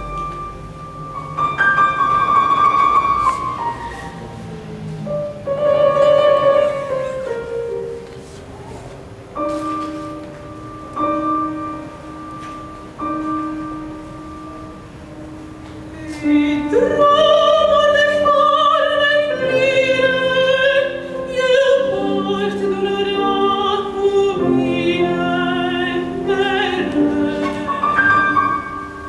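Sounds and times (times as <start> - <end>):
grand piano: 0.0 - 29.0
woman singing opera: 5.5 - 7.6, 15.9 - 29.0.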